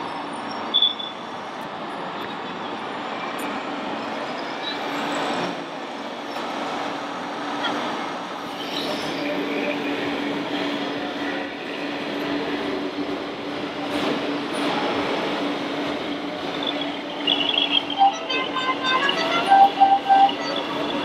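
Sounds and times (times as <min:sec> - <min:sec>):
tune playing: 0:17.2 - 0:21.0.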